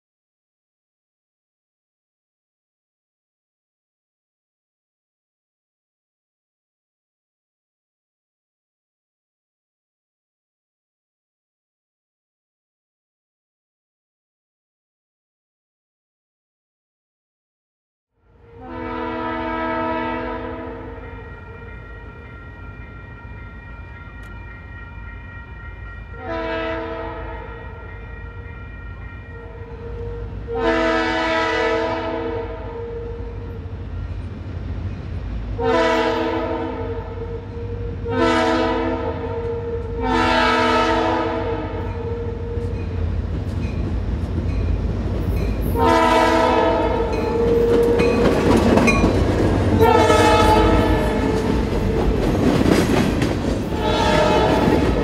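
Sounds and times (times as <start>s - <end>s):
locomotive air horn blasts: 18.4s - 22.3s, 26.2s - 33.6s, 35.6s - 42.8s, 45.8s - 48.2s, 49.8s - 52.2s, 53.7s - 55.0s.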